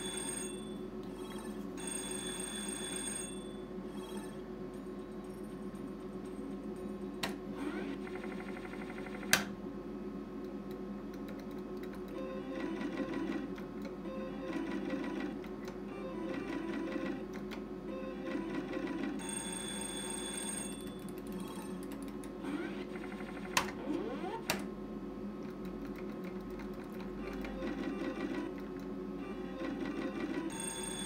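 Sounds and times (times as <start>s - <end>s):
slot machine beeping and ringing: 0.0s - 4.4s, 12.2s - 17.3s, 17.9s - 21.8s, 27.2s - 28.6s, 29.2s - 31.0s.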